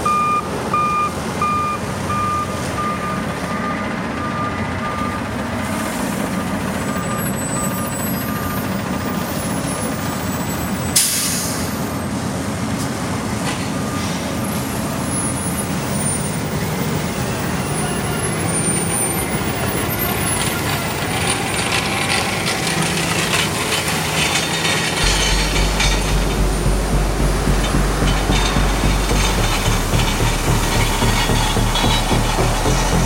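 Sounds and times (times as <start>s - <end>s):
construction machinery and trucks running: 0.0s - 33.0s
deep pulsing low rumble: 25.0s - 33.0s.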